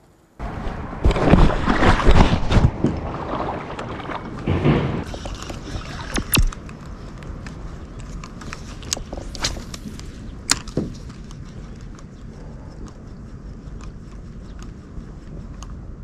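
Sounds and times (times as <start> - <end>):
wind: 0.0 - 16.0
rushing water: 1.0 - 6.5
sharp clicks and knocks: 4.4 - 12.1
low thump: 4.5 - 5.1.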